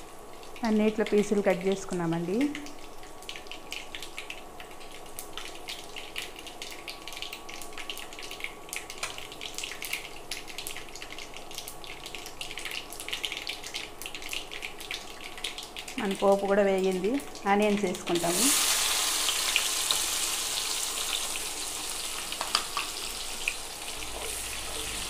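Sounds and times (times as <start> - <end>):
spices frying in hot oil: 0.0 - 25.0
crackles and pops: 22.3 - 23.6.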